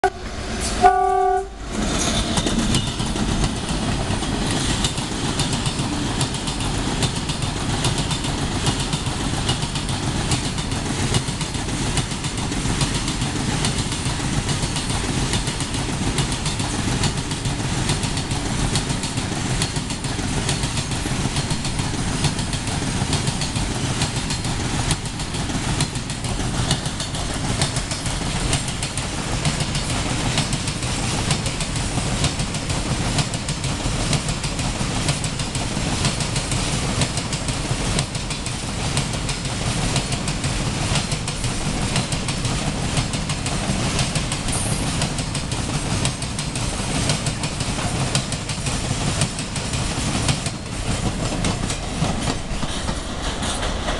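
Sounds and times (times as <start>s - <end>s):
train horn blast: 0.0s - 3.0s
train wagons rumbling past: 0.0s - 53.9s.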